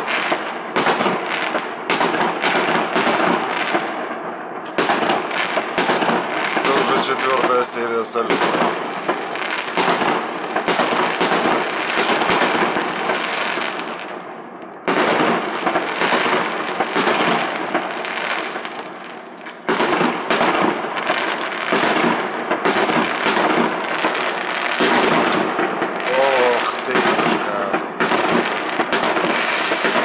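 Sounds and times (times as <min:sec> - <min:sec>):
fireworks bangs: 0:04.7 - 0:14.2, 0:14.8 - 0:18.9, 0:19.6 - 0:30.0
fireworks crackling: 0:05.8 - 0:14.2, 0:26.0 - 0:30.0.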